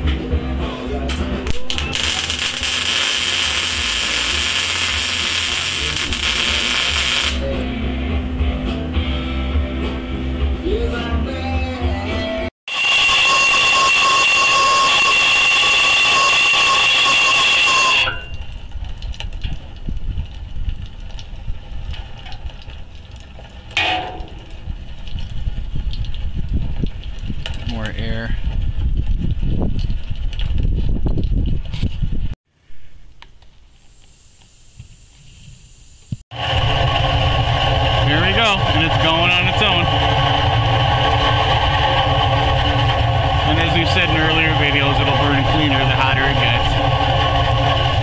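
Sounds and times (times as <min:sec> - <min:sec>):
welder arc crackling and hissing: 0:01.4 - 0:07.6, 0:33.4 - 0:48.0
small crackles: 0:18.4 - 0:23.8
burner flame rumbling: 0:18.5 - 0:32.3, 0:34.6 - 0:48.0.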